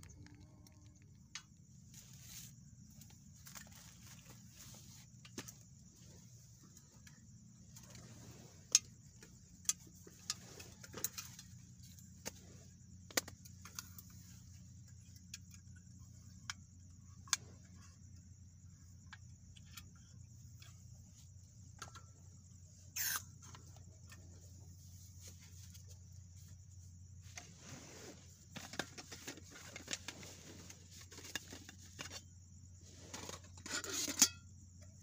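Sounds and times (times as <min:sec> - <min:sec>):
camping gear clicking and knocking: 0:00.0 - 0:18.2, 0:27.2 - 0:32.4, 0:33.1 - 0:35.0
scrape or rustle: 0:01.9 - 0:06.4, 0:07.8 - 0:08.7, 0:10.1 - 0:12.6, 0:27.2 - 0:34.3.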